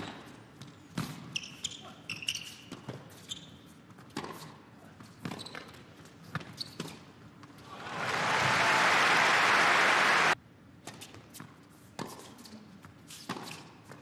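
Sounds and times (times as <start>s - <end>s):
crowd applause: 7.6s - 10.4s.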